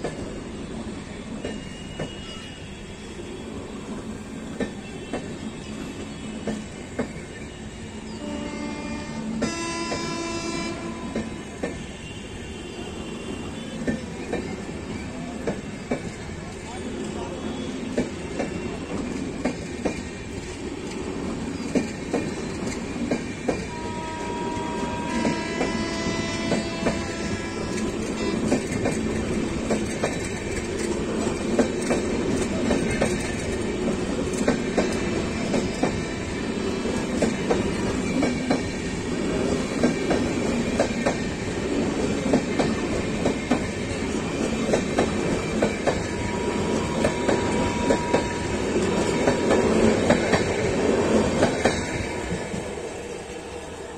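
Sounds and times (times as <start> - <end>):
train rumble: 0.0 - 53.9
train wheels clattering over joints: 17.8 - 23.7, 25.0 - 52.7.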